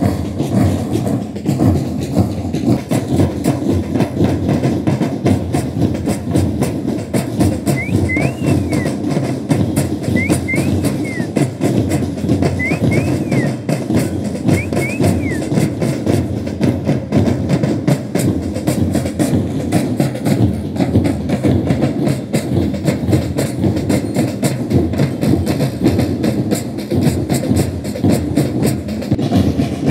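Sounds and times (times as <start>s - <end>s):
drums beaten in fast rhythm: 0.0s - 29.9s.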